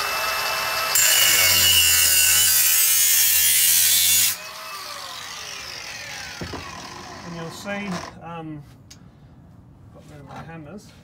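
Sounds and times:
angle grinder cutting metal pipe: 0.0s - 8.1s.

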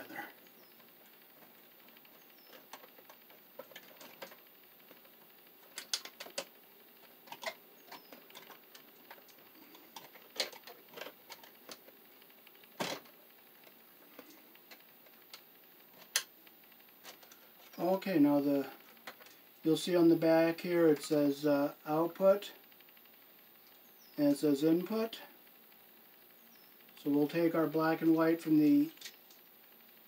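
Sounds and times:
wires clicking and scraping: 0.0s - 23.8s, 25.4s - 30.0s.

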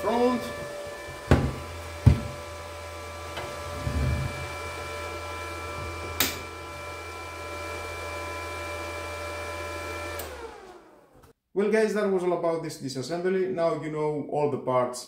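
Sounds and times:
welder cooling fan humming: 0.0s - 11.0s.

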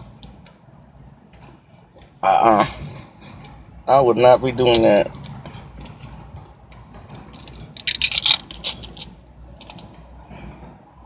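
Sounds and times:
food packaging crackling: 7.2s - 9.9s.

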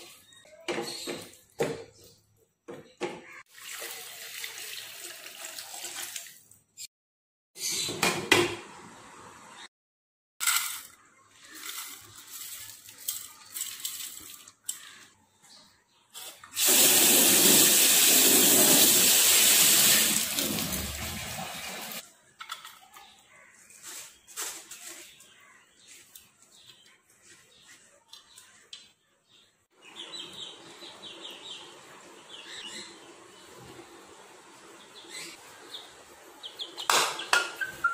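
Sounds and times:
tap water rushing into sink: 16.6s - 22.0s.

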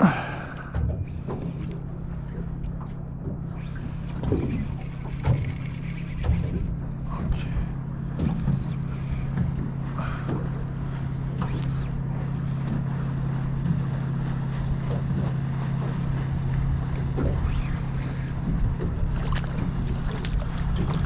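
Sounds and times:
low motor hum: 0.0s - 21.0s
water lapping: 0.0s - 21.0s
fish splashing: 3.5s - 6.9s.

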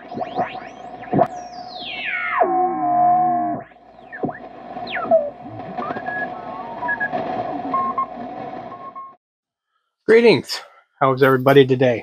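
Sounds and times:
electronic sweeping tone: 0.0s - 9.2s
sliding electronic whistles: 0.0s - 9.2s
steady electronic tone: 0.0s - 9.2s.

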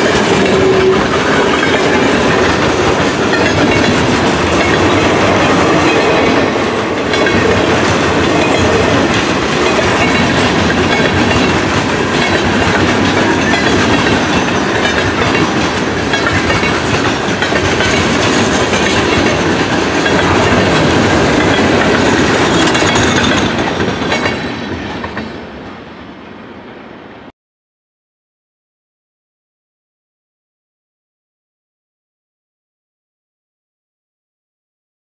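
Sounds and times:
wheels clacking over rail joints: 0.0s - 25.4s
freight train rolling past: 0.0s - 27.3s.

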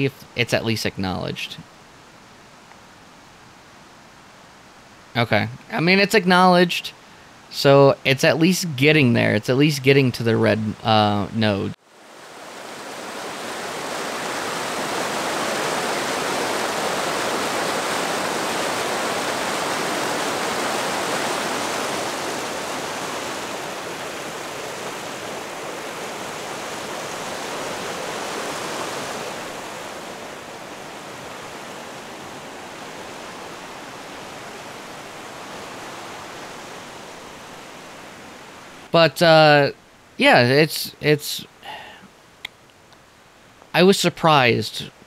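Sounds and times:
creek rushing over boulders: 11.9s - 39.6s.

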